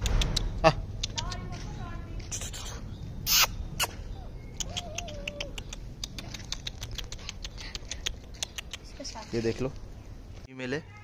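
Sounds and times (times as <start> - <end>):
puppy whimpering: 3.3 - 7.5.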